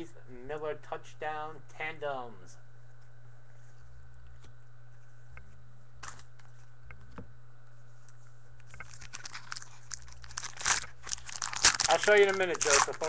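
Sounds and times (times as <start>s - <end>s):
cards shuffling and rustling: 8.0s - 13.0s.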